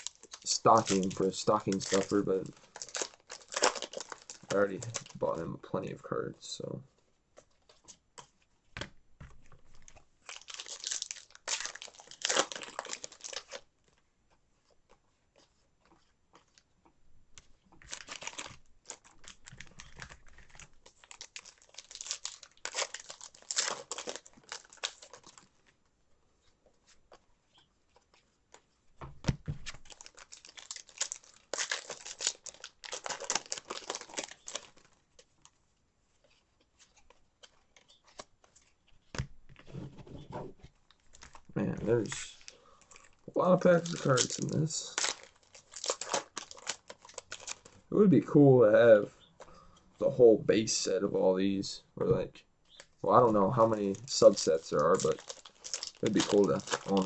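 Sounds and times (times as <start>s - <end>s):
foil packs tearing and crinkling: 0.0s - 5.3s, 10.2s - 13.6s, 17.8s - 25.5s, 29.7s - 35.0s, 41.1s - 47.8s, 53.5s - 57.0s.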